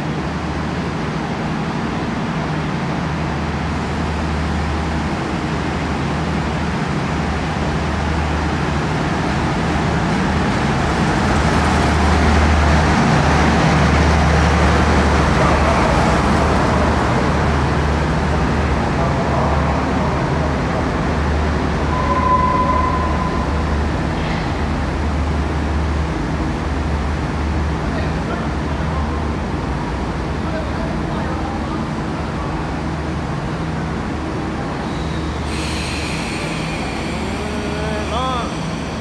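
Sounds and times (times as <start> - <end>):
diesel locomotive engine rumble: 0.0 - 39.0
passenger coaches rolling by: 0.0 - 39.0.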